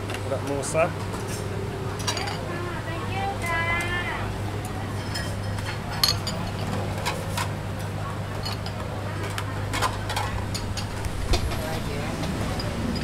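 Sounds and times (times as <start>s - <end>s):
bowls and utensils clinking: 5.0s - 7.5s, 8.3s - 8.8s, 12.4s - 13.0s
steady low hum: 9.7s - 13.0s.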